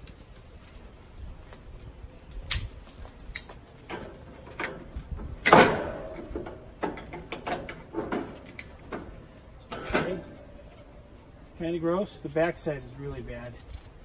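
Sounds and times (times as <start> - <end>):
metal grill grates clanking: 3.8 - 11.2.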